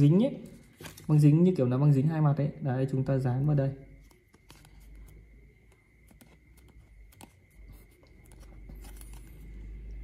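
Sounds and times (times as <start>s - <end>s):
paper rustle: 0.0s - 1.3s, 4.0s - 5.2s, 6.0s - 9.8s
steady low hum: 3.8s - 10.0s.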